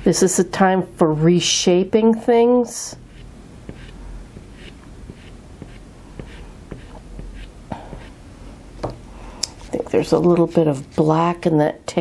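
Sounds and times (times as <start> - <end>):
pastel scratching on paper: 3.1 - 8.2.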